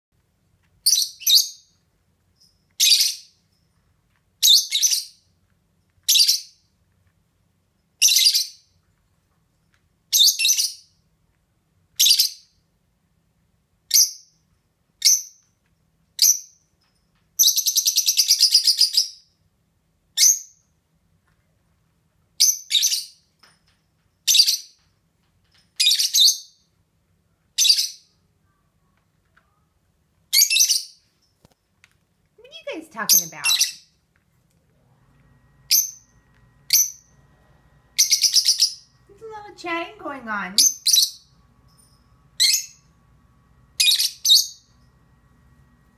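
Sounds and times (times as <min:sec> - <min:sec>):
lovebirds chirping: 0:32.5 - 0:34.0, 0:35.6 - 0:43.0, 0:43.6 - 0:45.0.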